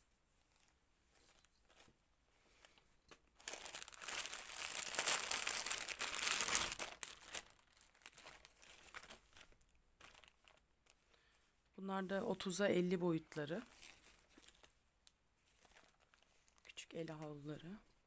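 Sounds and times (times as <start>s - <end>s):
plastic rustling: 0.4s - 11.2s, 13.4s - 14.8s, 15.4s - 17.7s
plastic packaging crinkling: 2.6s - 11.0s, 13.5s - 14.7s, 15.5s - 17.4s.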